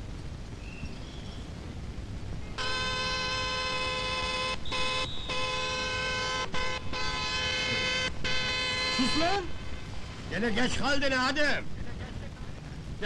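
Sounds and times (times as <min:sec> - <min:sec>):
truck horn blasts: 0:02.6 - 0:09.8.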